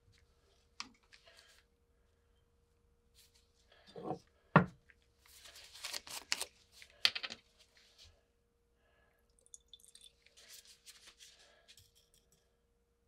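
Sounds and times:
liquid pouring into glass jar: 9.4 - 10.4.

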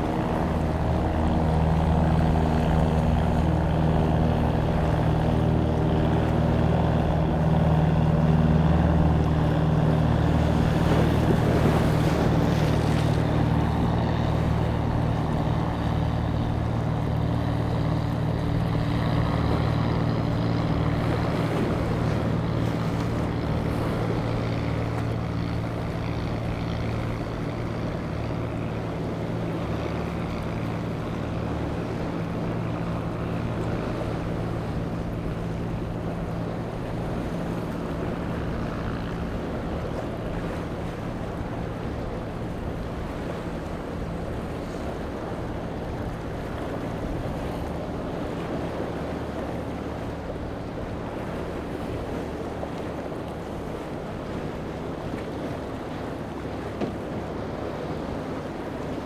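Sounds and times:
choppy water: 0.0 - 59.0
motorboat engine humming: 0.0 - 59.0
wind: 0.0 - 59.0.

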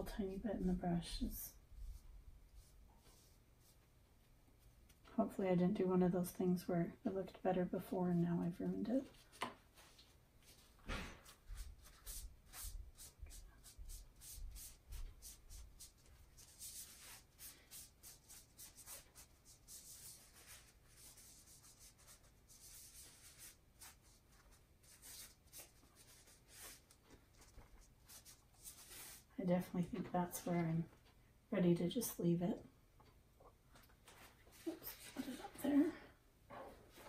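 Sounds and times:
soft scratchy rubbing strokes: 0.0 - 4.0, 7.8 - 30.8, 34.0 - 35.9.

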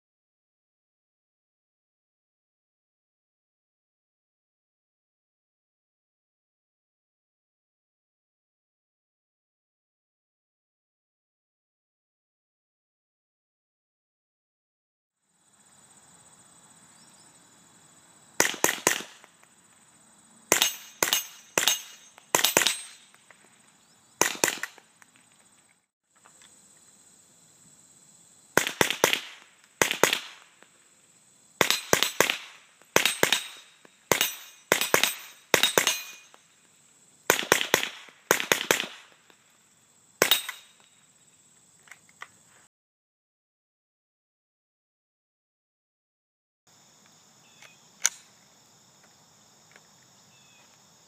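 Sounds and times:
muffled rifle cracks: 18.4 - 19.5, 24.2 - 25.1, 47.6 - 48.3.

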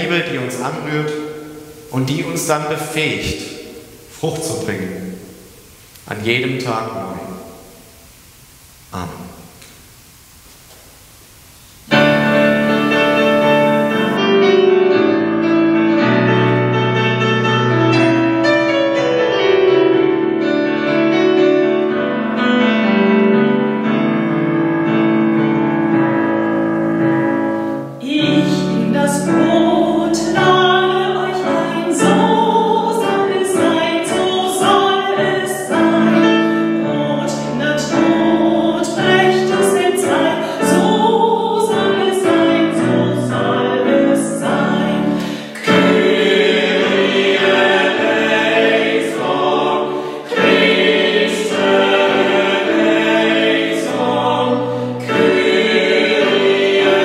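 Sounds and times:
singers singing a hymn: 11.9 - 14.6, 23.5 - 57.0
soprano singing: 11.9 - 16.7, 21.9 - 57.0
digital piano playing a hymn: 11.9 - 57.0.

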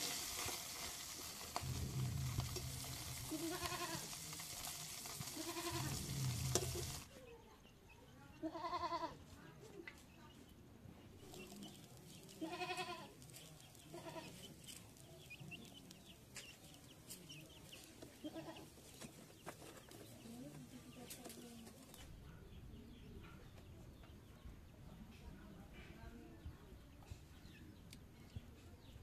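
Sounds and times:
goat bleating: 5.4 - 6.0, 8.4 - 9.2, 12.4 - 13.2, 13.9 - 14.4
faint high chirps: 11.1 - 12.4.

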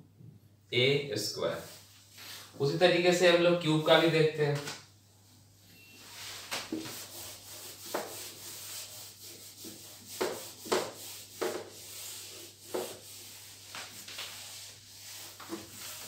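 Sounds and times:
eraser rubbing on whiteboard: 6.0 - 16.0.

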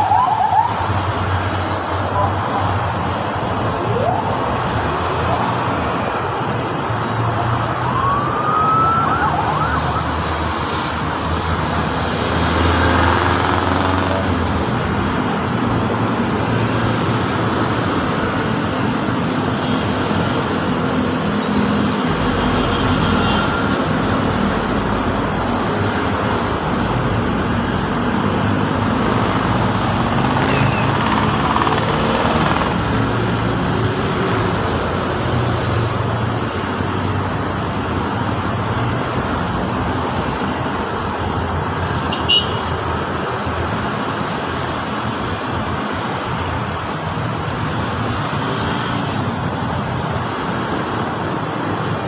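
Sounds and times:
road traffic passing: 0.0 - 52.0.

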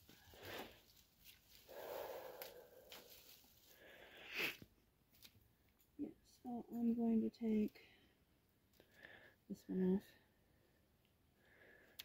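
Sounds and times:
plants rustling: 0.0 - 4.0.

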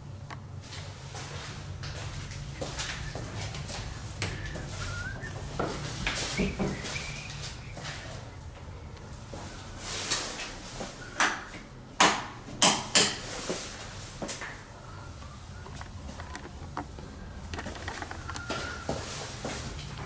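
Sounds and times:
hard objects knocking: 6.4 - 7.2, 15.6 - 18.5.

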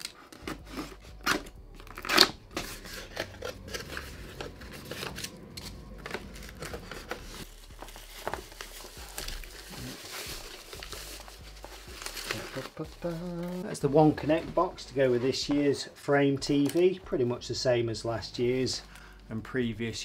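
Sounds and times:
foam wrap rustling: 0.0 - 15.8.

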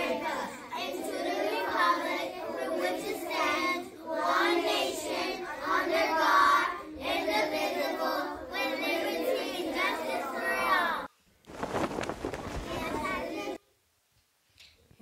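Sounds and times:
children reciting in unison: 0.0 - 11.1, 12.7 - 13.6.

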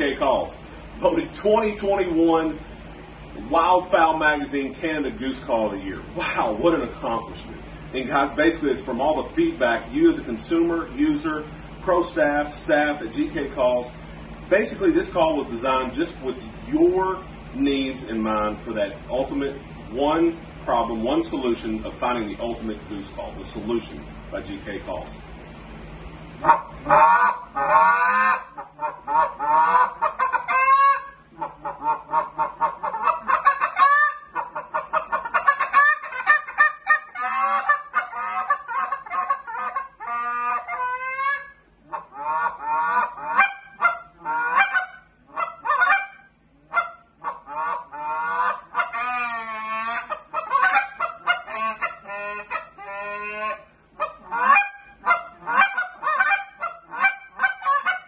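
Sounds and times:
goose call honks: 26.4 - 58.0.

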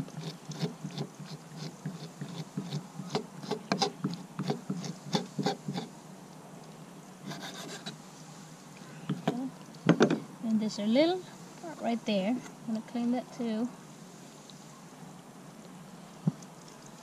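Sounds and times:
knife cutting on wooden board: 0.0 - 5.9.

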